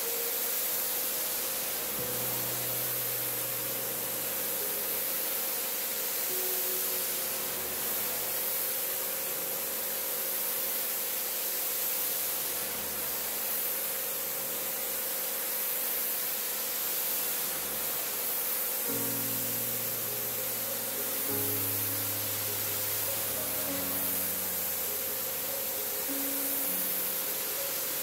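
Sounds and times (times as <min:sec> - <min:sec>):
music: 0:00.0 - 0:28.0
pressure washer spraying water: 0:00.0 - 0:28.0.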